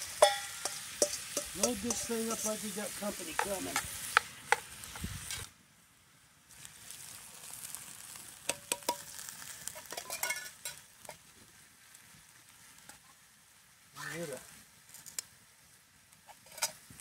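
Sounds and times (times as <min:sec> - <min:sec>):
vegetables sizzling in a pot: 0:00.0 - 0:17.0
can clicking against pot: 0:00.1 - 0:02.2, 0:08.4 - 0:11.2.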